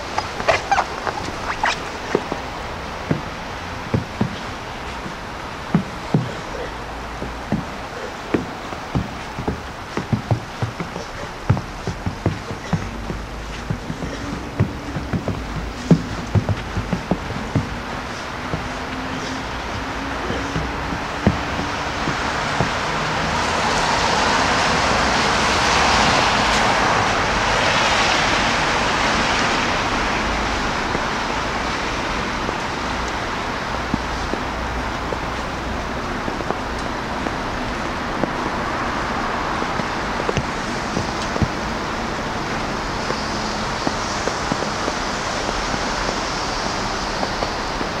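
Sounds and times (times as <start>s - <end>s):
steady traffic hiss: 0.0s - 48.0s
car tyres hissing on wet road: 1.2s - 48.0s.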